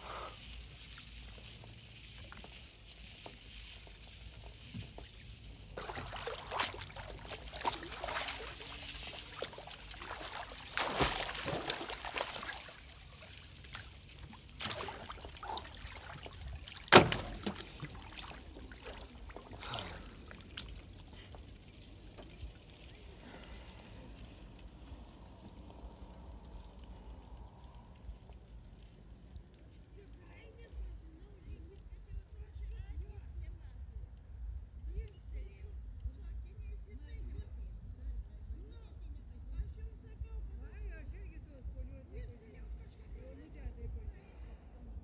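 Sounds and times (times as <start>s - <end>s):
water splashing and sloshing: 0.0s - 30.2s
hand-splashing: 5.8s - 20.8s
sharp slap on water: 16.9s - 17.6s.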